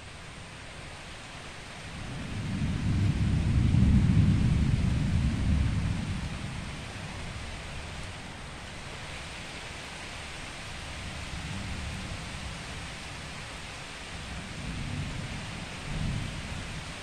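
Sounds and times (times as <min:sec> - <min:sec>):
rolling thunder: 0:02.1 - 0:06.8.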